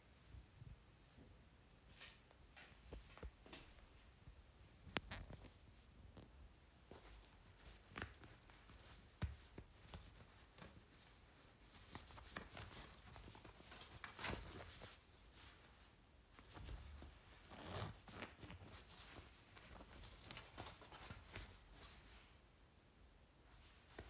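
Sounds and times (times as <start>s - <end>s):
denim and paper tags rustling: 4.8s - 22.4s.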